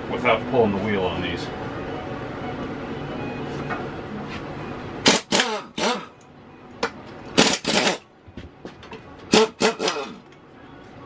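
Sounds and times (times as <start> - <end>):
impact wrench bursts: 5.0 - 6.2, 7.3 - 8.0, 9.3 - 10.2.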